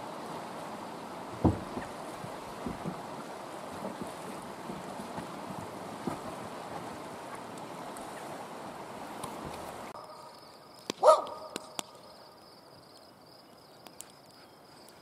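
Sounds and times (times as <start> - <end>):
river water rushing: 0.0 - 10.3
dog barking: 11.0 - 11.6.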